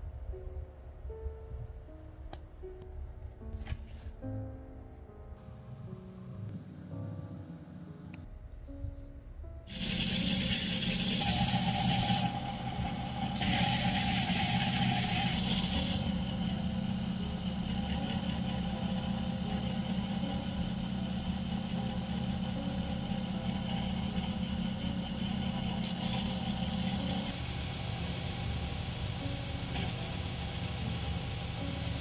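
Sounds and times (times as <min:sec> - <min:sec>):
belt grinder motor running: 0:09.7 - 0:32.0.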